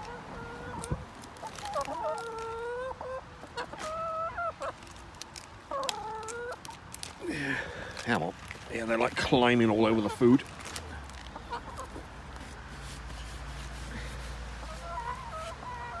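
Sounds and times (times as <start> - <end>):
hens calling: 0.0 - 5.0, 9.3 - 10.5, 11.2 - 12.2, 14.6 - 16.0.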